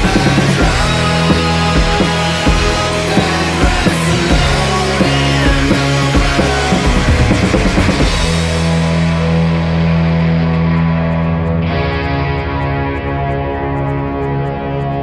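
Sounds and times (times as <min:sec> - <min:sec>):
drum kit: 0:00.0 - 0:11.3
electric guitars: 0:00.0 - 0:15.0.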